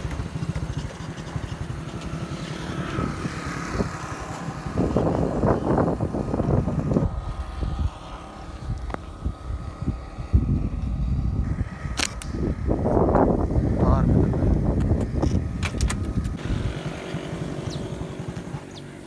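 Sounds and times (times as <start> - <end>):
wind buffeting microphone: 0.0 - 19.0
sharp click: 12.0 - 12.4.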